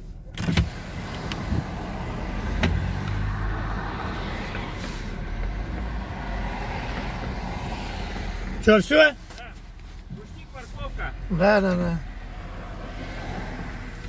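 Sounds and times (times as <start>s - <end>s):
car engine rumble: 0.0s - 14.0s
engine clunks and knocks: 0.3s - 8.7s.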